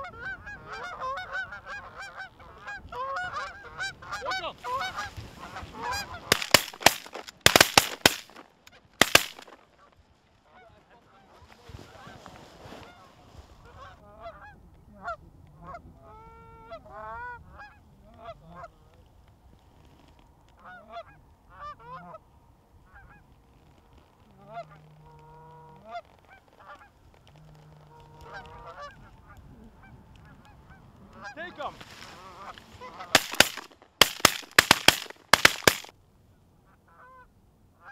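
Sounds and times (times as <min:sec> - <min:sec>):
geese honking: 0:00.0 - 0:09.6, 0:27.9 - 0:35.9.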